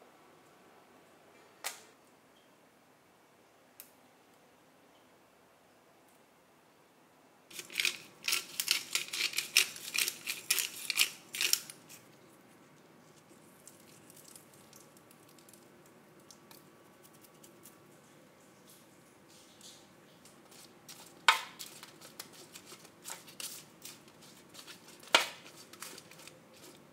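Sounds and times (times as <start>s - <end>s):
pepper mill grinding: 7.5s - 12.0s, 20.5s - 26.9s.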